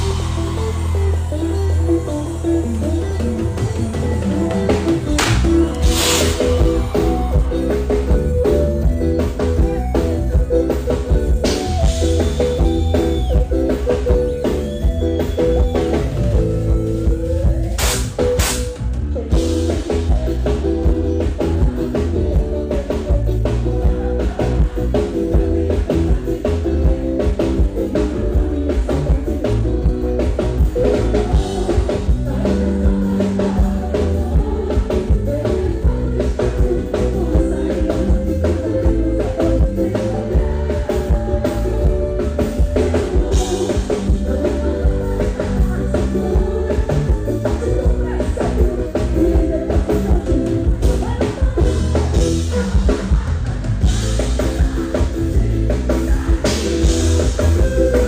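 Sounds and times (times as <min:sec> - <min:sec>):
bass and guitar: 0:00.0 - 0:58.0
drum beat: 0:04.4 - 0:12.9
woman singing into a microphone: 0:27.9 - 0:53.6.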